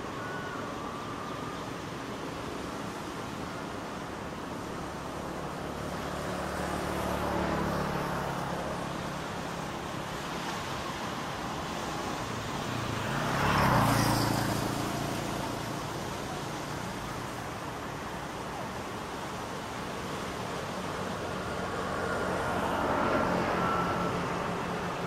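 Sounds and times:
waves breaking on beach: 0:00.0 - 0:25.0.

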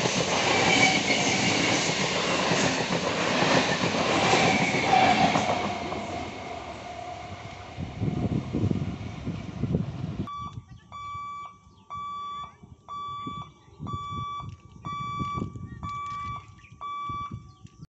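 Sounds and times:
electric train rumbling past: 0:00.0 - 0:10.3.

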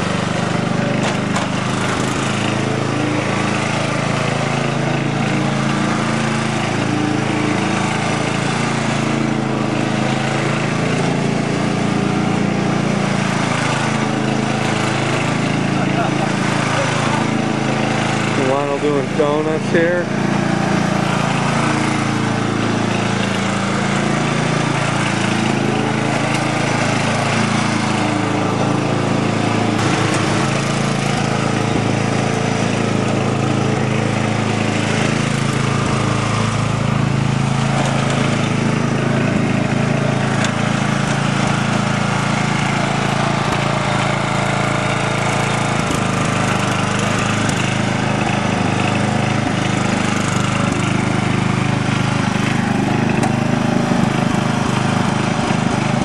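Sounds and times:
lawn tractor engine running: 0:00.0 - 0:56.0.

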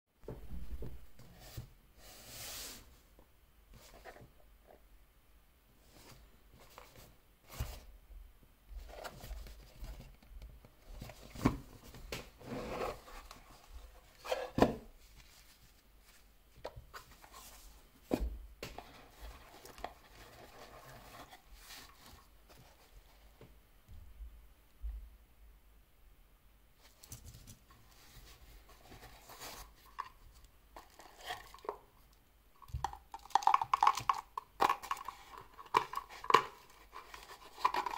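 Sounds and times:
soft rustling: 0:08.8 - 0:23.6
packaging being handled: 0:34.6 - 0:37.9.

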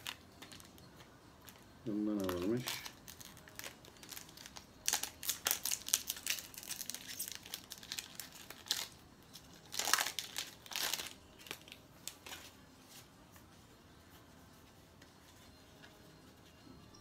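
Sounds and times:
foil sachet crinkling: 0:01.9 - 0:12.5.

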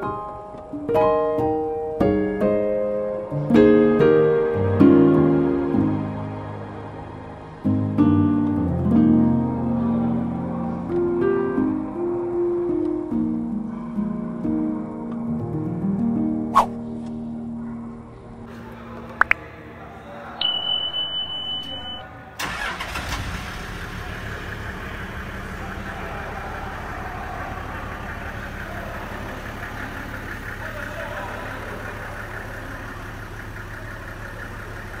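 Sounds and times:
clicks: 0:19.0 - 0:19.4
steady high beep: 0:20.4 - 0:22.0
engine cranking and idling: 0:22.4 - 0:35.0.

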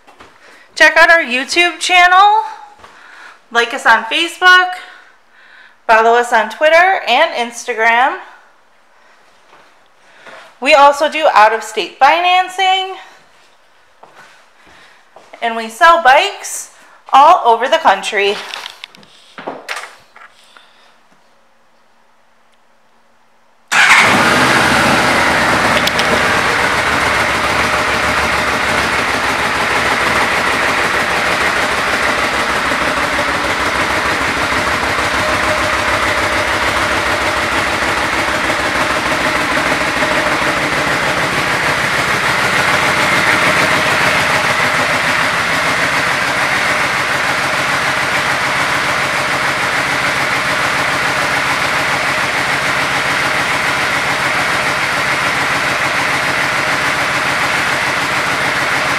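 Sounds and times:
motorcycle engine starting and idling: 0:23.7 - 0:58.9.

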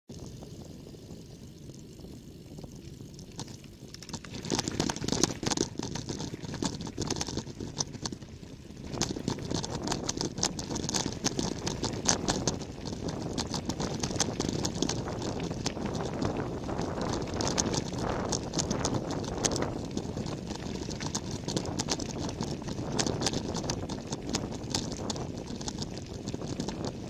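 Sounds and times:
tyres rolling on gravel: 0:04.1 - 0:27.0.

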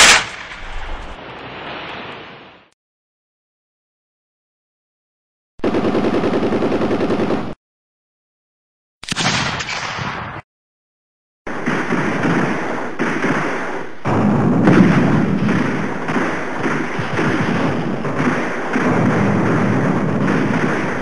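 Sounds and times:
rifle fire: 0:00.0 - 0:01.2, 0:09.0 - 0:10.4, 0:11.5 - 0:21.0.

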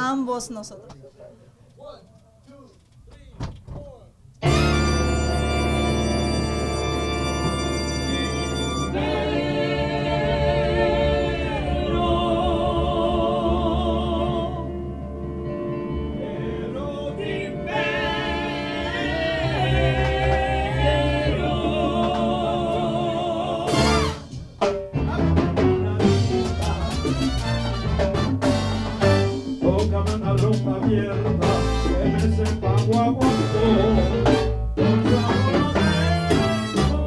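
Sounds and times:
band playing sharp accented hits: 0:04.4 - 0:09.2, 0:23.7 - 0:30.6, 0:31.3 - 0:37.0
keyboard: 0:04.4 - 0:37.0
backing voices singing: 0:05.6 - 0:14.9, 0:16.1 - 0:24.3, 0:25.0 - 0:27.8, 0:29.0 - 0:37.0
man singing with vibrato: 0:29.6 - 0:37.0.

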